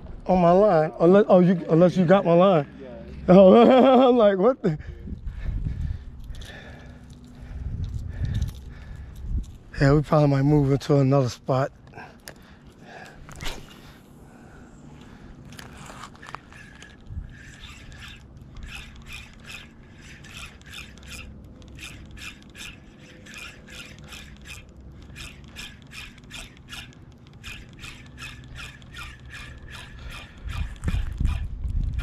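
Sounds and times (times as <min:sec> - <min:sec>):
fishing reel gears ticking: 0:15.0 - 0:32.0.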